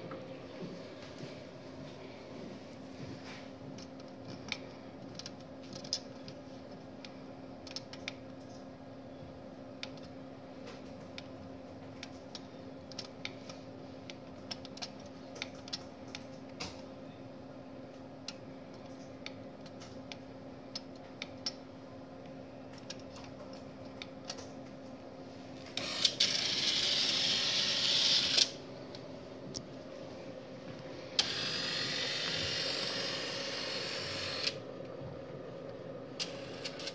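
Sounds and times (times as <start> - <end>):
tape library humming: 0.0 - 36.9
robotic picker whirring: 31.2 - 34.6.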